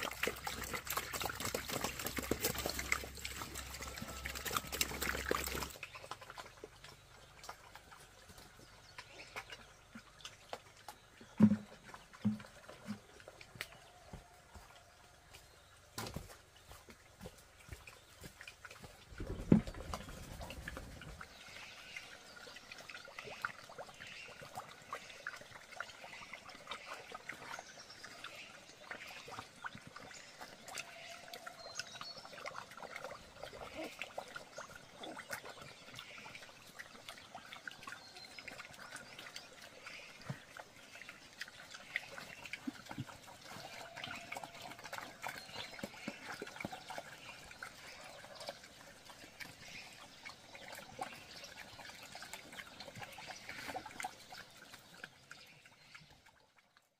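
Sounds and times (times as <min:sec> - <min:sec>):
small wet splashes: 0:00.0 - 0:13.9
pigs slurping water: 0:00.0 - 0:56.9.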